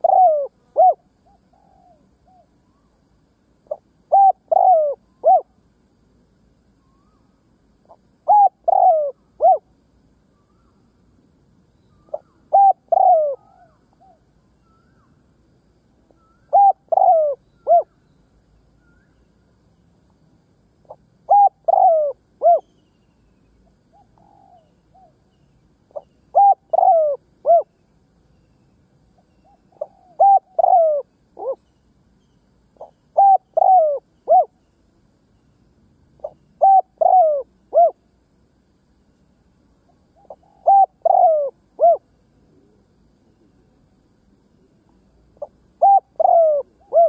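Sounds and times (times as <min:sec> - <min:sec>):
dove cooing: 0:00.0 - 0:02.5, 0:03.7 - 0:05.6, 0:07.9 - 0:09.7, 0:12.1 - 0:14.2, 0:16.2 - 0:18.0, 0:20.9 - 0:22.7, 0:23.9 - 0:25.2, 0:25.9 - 0:27.7, 0:29.4 - 0:31.6, 0:32.8 - 0:34.6, 0:36.2 - 0:38.0, 0:40.2 - 0:42.8, 0:45.4 - 0:47.0.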